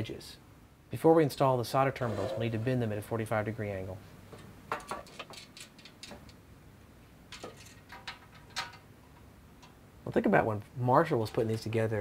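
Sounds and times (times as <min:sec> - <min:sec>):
small metal parts clicking on metal: 0:05.0 - 0:06.4.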